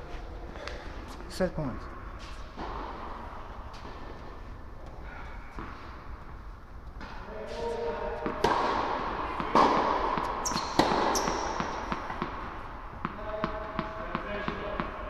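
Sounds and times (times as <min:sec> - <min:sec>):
tennis ball bouncing on hard court: 0:08.2 - 0:15.0.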